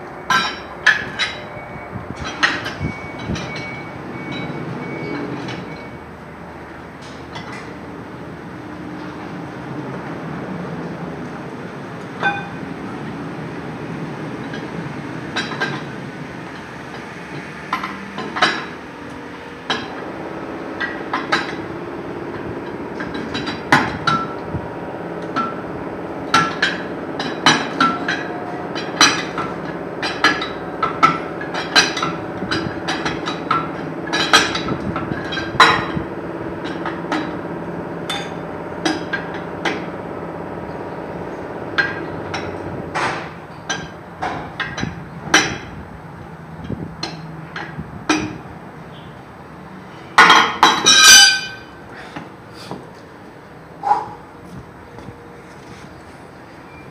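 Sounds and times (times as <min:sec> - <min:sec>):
steady low hum: 0:17.7 - 0:47.1.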